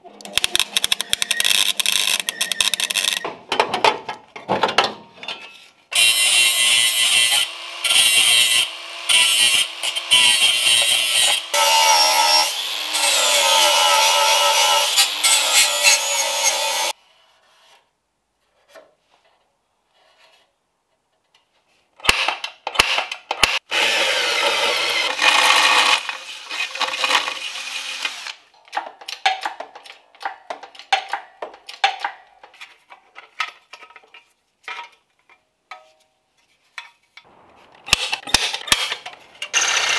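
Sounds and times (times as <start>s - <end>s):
power tool cutting sheet steel: 6.0s - 16.9s, 23.7s - 28.4s, 37.9s - 39.9s.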